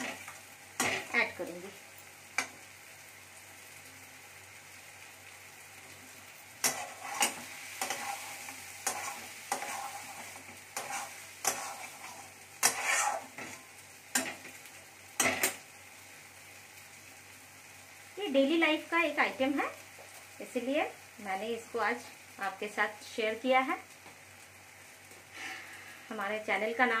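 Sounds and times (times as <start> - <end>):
faint sizzle: 0.0 - 27.0
spatula scraping and knocking pan: 6.6 - 14.6.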